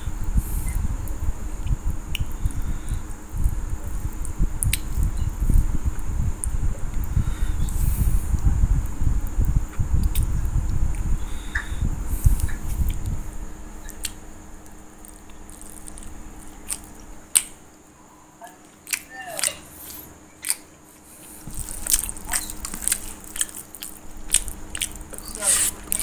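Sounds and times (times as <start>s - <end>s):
low rumble: 0.0s - 17.3s
person chewing food: 0.6s - 5.7s, 12.2s - 17.6s, 18.6s - 26.0s
wet mouth clicks and lip smacks: 1.6s - 2.6s, 4.0s - 5.6s, 9.4s - 10.3s, 13.8s - 14.2s, 15.0s - 17.6s, 18.9s - 20.7s, 21.5s - 26.0s.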